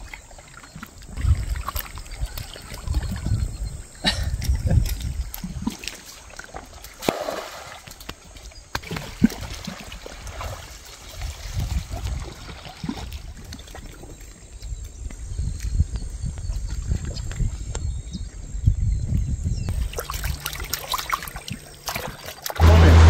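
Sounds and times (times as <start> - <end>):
river water splashing and trickling: 0.0 - 15.1, 19.7 - 23.0
water streaming off net: 5.8 - 8.0, 8.8 - 13.1.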